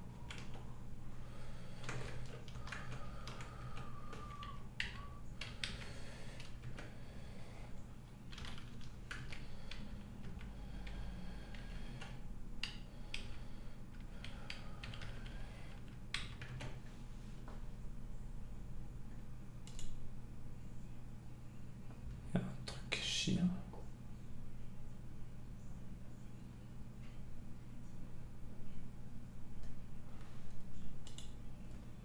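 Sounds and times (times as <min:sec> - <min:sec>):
low steady hum: 0:00.0 - 0:32.0
typing on computer keyboard: 0:00.3 - 0:00.7, 0:01.8 - 0:06.9, 0:08.3 - 0:16.8.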